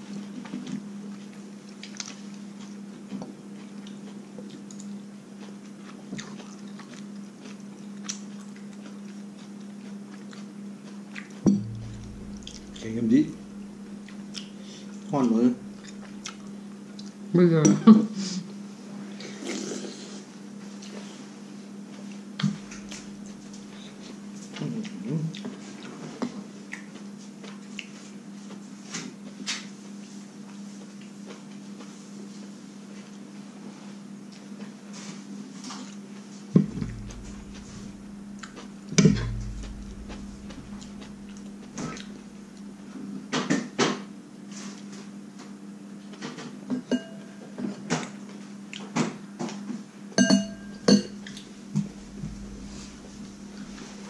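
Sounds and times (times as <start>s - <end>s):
louder knocks: 11.5s - 13.6s, 36.6s - 38.1s, 39.0s - 41.8s
low hum: 11.5s - 14.2s, 15.2s - 16.3s, 22.4s - 23.8s, 36.6s - 42.9s, 50.3s - 54.0s
spoon clinking on ceramic: 46.9s - 47.4s, 50.2s - 51.2s.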